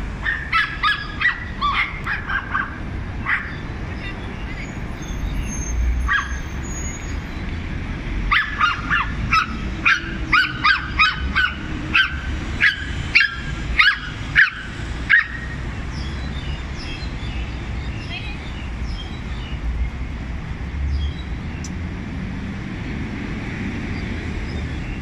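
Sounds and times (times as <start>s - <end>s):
small dog yapping: 0.2s - 3.6s, 8.3s - 15.4s.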